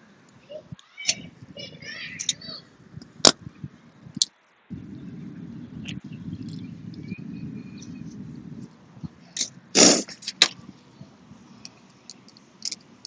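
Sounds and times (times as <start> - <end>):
low rumble: 1.3 - 9.8.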